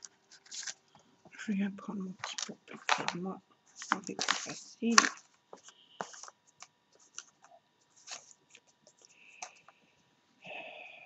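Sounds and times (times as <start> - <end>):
scraping rustle: 2.2 - 6.3, 7.0 - 9.5.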